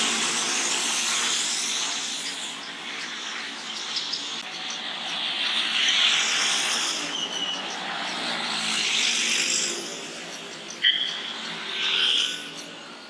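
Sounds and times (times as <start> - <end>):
minibus passing: 0.0 - 13.0
tyres hissing on wet road: 0.0 - 13.0
motor scooter passing: 4.3 - 13.0.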